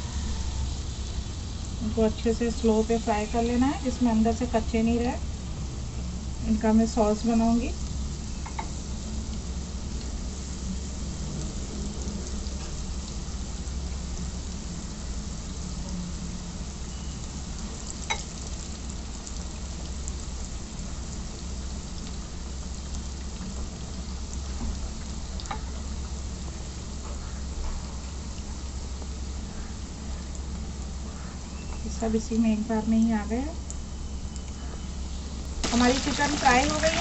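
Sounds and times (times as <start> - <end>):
food sizzling in hot oil: 0.0 - 27.0, 35.4 - 37.0.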